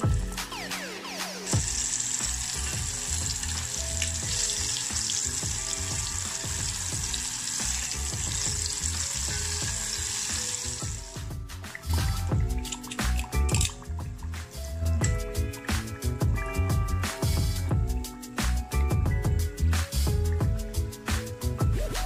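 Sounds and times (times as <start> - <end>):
fish deep-frying in oil: 1.4 - 13.8.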